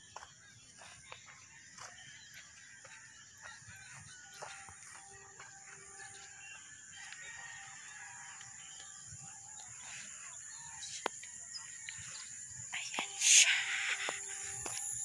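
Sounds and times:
bird calls: 0:00.0 - 0:15.0
faint rooster crowing: 0:01.6 - 0:12.5.

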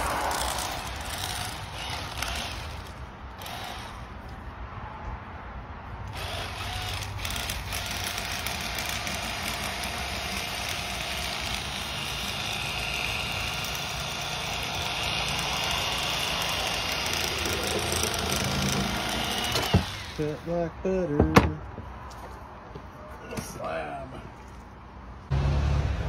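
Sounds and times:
motor running with hiss: 0:00.0 - 0:04.0, 0:06.2 - 0:20.3.

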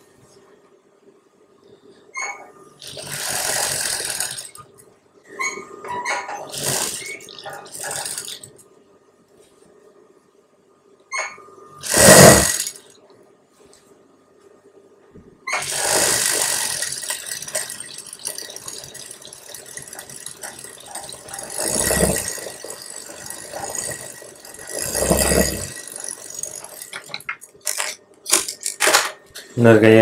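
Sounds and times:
sewing machine rattling: 0:02.8 - 0:04.6, 0:05.4 - 0:08.6, 0:11.8 - 0:12.9, 0:15.5 - 0:29.2
sewing machine clicks: 0:06.4 - 0:08.6, 0:15.6 - 0:29.1.

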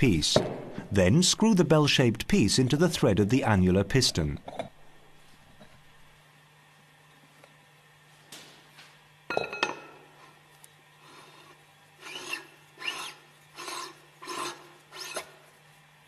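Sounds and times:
metal scraping on metal: 0:11.1 - 0:15.3.

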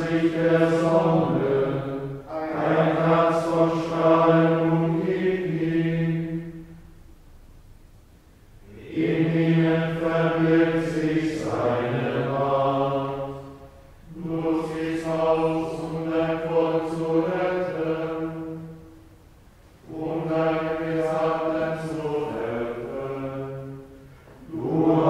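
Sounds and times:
men singing chant: 0:00.0 - 0:06.1, 0:08.7 - 0:13.3, 0:14.1 - 0:18.4, 0:19.9 - 0:23.5, 0:24.5 - 0:25.0.

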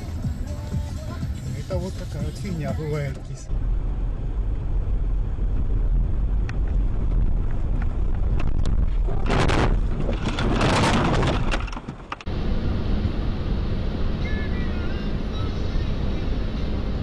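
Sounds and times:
road and engine rumble: 0:00.0 - 0:17.0
harsh scraping noise: 0:08.3 - 0:12.2
car crash: 0:09.0 - 0:12.2.

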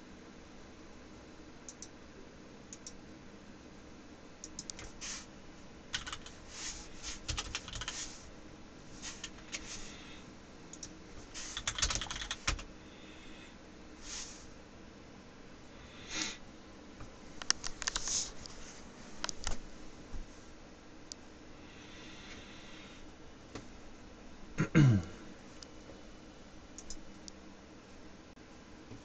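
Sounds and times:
keyboard typing clicks: 0:01.7 - 0:01.9, 0:02.7 - 0:03.0, 0:04.4 - 0:04.9, 0:05.9 - 0:06.4, 0:07.3 - 0:08.0, 0:10.7 - 0:11.0, 0:11.6 - 0:12.7, 0:17.4 - 0:18.1, 0:19.2 - 0:19.6, 0:26.8 - 0:27.4.

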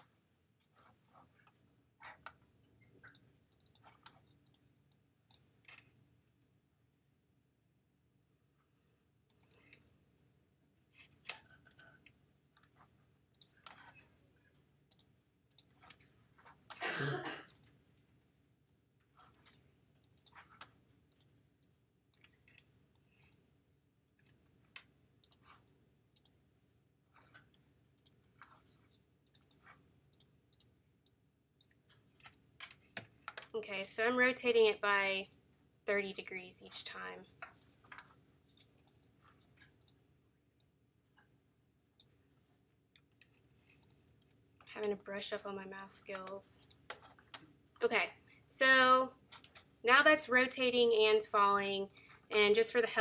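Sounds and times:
keyboard and mouse clicks: 0:00.8 - 0:06.5, 0:09.3 - 0:14.0, 0:14.9 - 0:16.8, 0:17.5 - 0:17.8, 0:18.7 - 0:23.4, 0:24.2 - 0:25.6, 0:27.2 - 0:33.6, 0:36.9 - 0:40.0.

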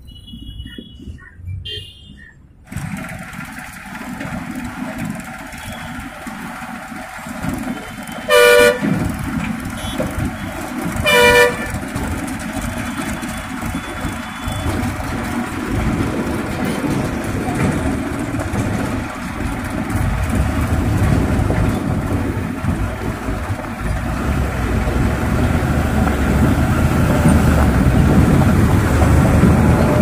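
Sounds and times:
diesel tractor rumble: 0:02.2 - 0:30.0
truck driving past: 0:02.6 - 0:30.0
vehicle horn blasts: 0:08.0 - 0:11.9.

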